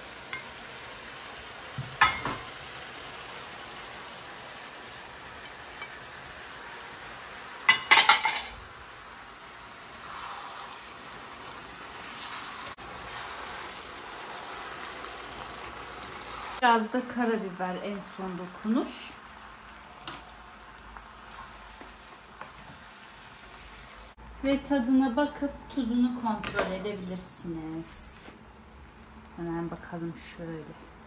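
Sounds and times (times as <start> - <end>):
noodles sizzling in a pan: 0.0 - 24.2.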